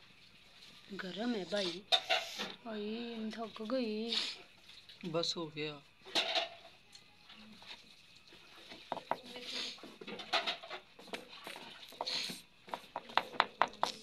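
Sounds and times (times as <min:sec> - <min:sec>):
metal spoon scraping a plate: 0:01.8 - 0:02.5.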